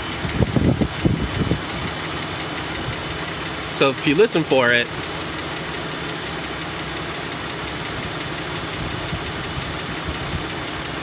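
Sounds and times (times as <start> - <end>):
car engine idling: 0.0 - 11.0
rapid even engine ticking: 0.0 - 11.0.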